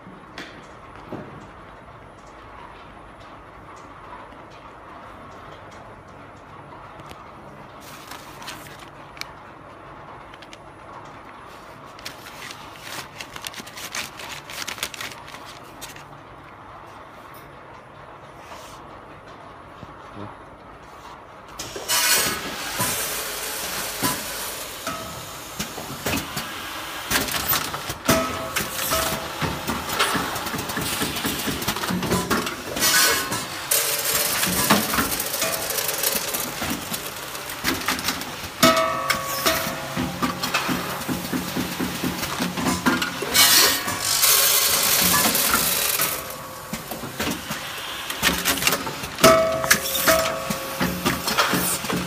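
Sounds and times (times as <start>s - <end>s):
packing machine clattering: 2.2s - 16.2s, 21.6s - 52.0s.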